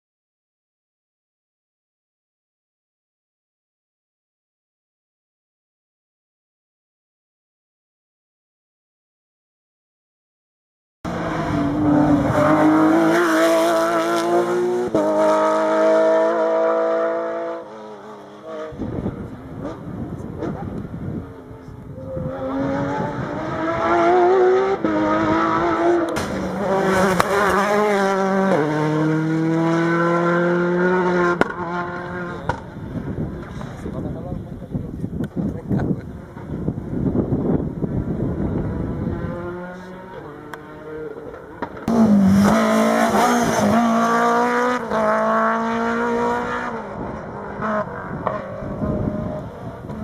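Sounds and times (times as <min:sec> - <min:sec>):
rally car engine revving through gears: 0:11.1 - 0:33.8, 0:36.2 - 0:50.0
sharp crack: 0:26.1 - 0:26.6.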